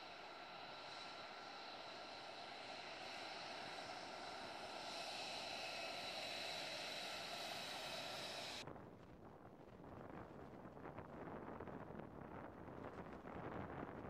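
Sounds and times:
distant jet rumble: 0:00.0 - 0:08.6
jet engine whine: 0:00.0 - 0:08.6.

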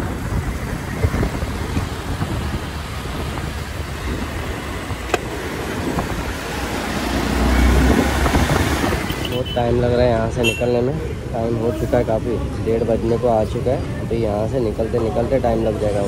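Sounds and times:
motorcycle engine rumble: 0:00.0 - 0:11.4
road and wind noise: 0:00.0 - 0:16.0
surrounding traffic: 0:00.0 - 0:16.0.

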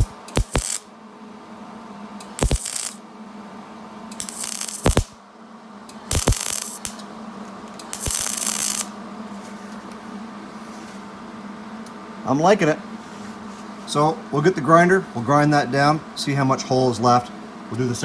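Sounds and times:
welding arc crackling: 0:00.0 - 0:00.9, 0:02.2 - 0:03.0, 0:04.1 - 0:05.2, 0:05.9 - 0:07.1, 0:07.7 - 0:09.0.

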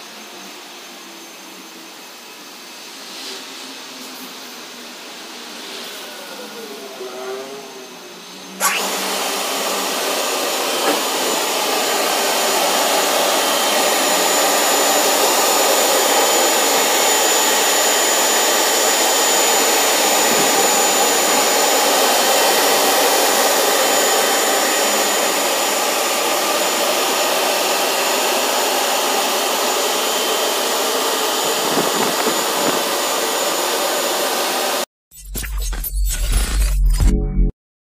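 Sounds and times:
drying blowers rushing air: 0:00.0 - 0:34.9
thin high whine: 0:05.7 - 0:34.0
machine whirr: 0:08.4 - 0:37.1.

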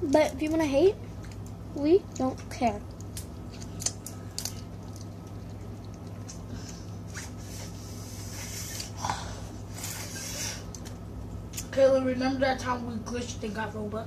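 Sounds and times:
steady low hum: 0:00.0 - 0:14.0
wet squishing of crab eating: 0:03.0 - 0:07.1.

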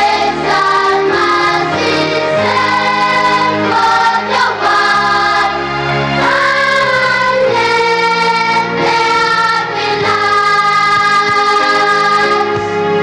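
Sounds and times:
choir singing a hymn: 0:00.0 - 0:13.0.

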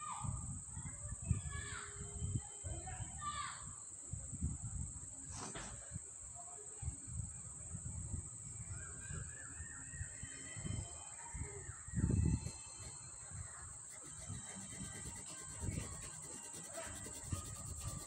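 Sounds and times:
steady high-pitched whine: 0:07.2 - 0:18.0.

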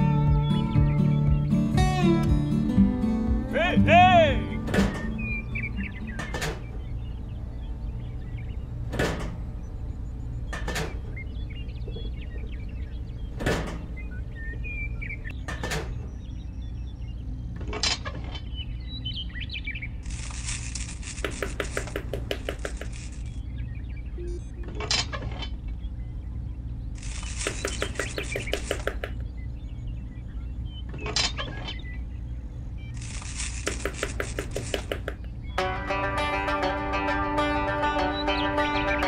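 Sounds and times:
steady low hum: 0:00.0 - 0:31.1
plastic parts clicking and knocking: 0:20.1 - 0:23.4, 0:27.0 - 0:29.2, 0:33.0 - 0:35.4.

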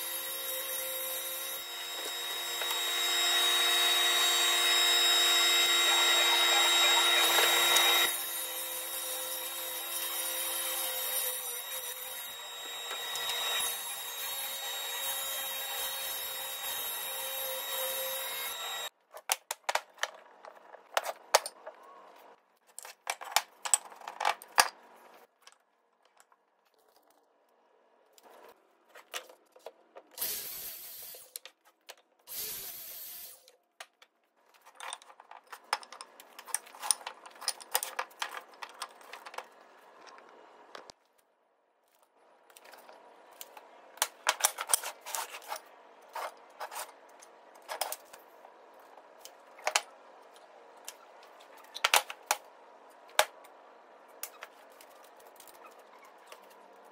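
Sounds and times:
table saw cutting wood: 0:00.0 - 0:18.9
wood scraping: 0:41.9 - 0:49.8.

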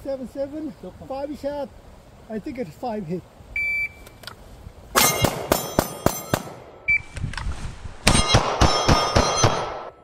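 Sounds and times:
pistol shots: 0:05.0 - 0:06.8, 0:08.1 - 0:10.0.

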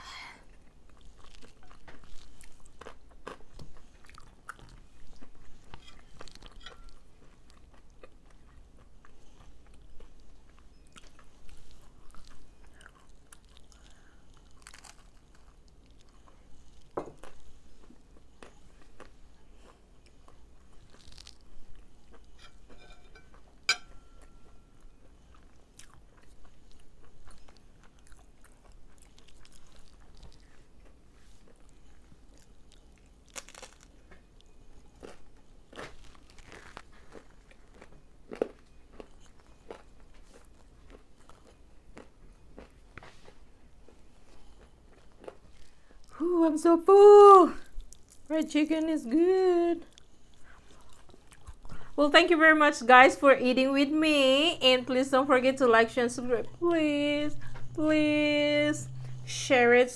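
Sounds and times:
chewing with small crackles: 0:00.2 - 0:46.2, 0:47.6 - 0:59.8
crunching fried chicken: 0:11.1 - 0:16.1, 0:18.4 - 0:22.3, 0:31.6 - 0:43.4.

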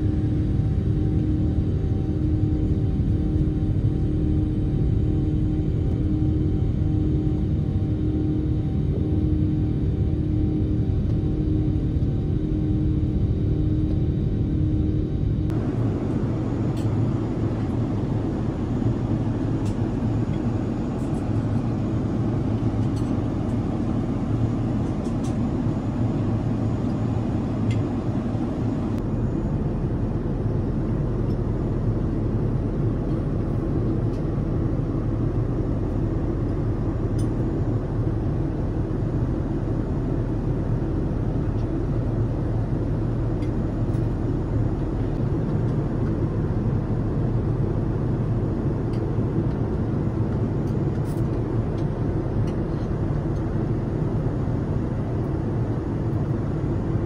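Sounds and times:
airplane cabin rumble: 0:00.0 - 0:57.0.

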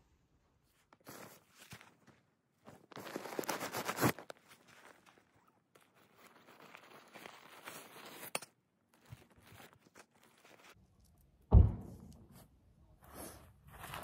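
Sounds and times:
heavy deep thump: 0:11.5 - 0:12.2.

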